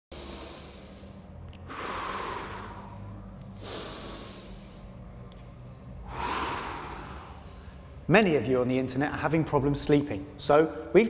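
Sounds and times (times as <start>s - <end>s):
man breathing through the nose: 0.1s - 5.2s, 6.0s - 8.0s.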